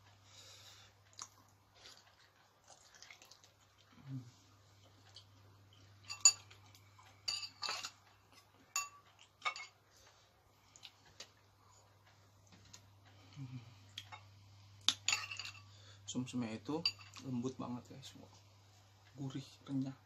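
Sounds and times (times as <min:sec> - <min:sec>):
low steady hum: 0:00.0 - 0:20.0
metal spoon clinking on bowl: 0:06.0 - 0:06.6, 0:07.3 - 0:08.0, 0:08.7 - 0:09.8, 0:14.9 - 0:15.7, 0:16.8 - 0:17.3.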